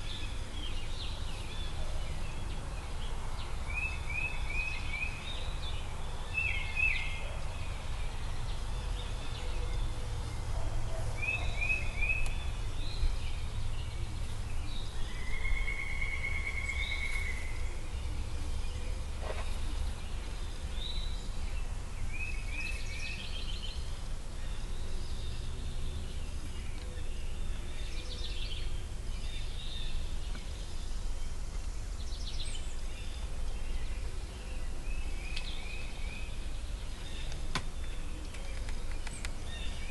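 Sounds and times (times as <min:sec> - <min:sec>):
songbirds calling: 0:00.0 - 0:39.9
steady low rumble: 0:00.0 - 0:39.9
bird trill: 0:03.7 - 0:25.5.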